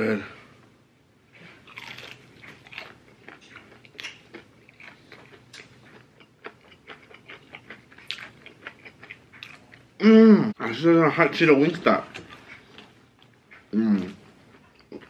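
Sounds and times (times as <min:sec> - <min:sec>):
person chewing with smacks: 0:01.4 - 0:09.9, 0:12.0 - 0:15.0.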